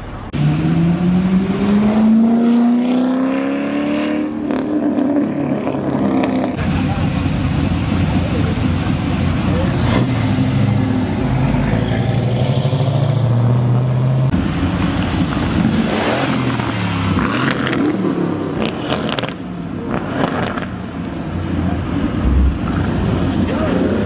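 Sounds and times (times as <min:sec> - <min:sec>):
car engine revving: 0:00.3 - 0:13.1, 0:21.8 - 0:24.0
car engine idling: 0:06.6 - 0:09.8.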